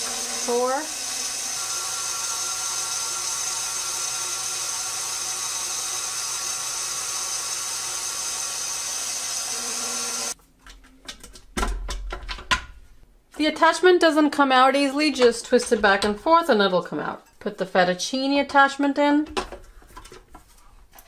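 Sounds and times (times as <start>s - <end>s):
stand mixer motor whining: 0.0s - 10.4s.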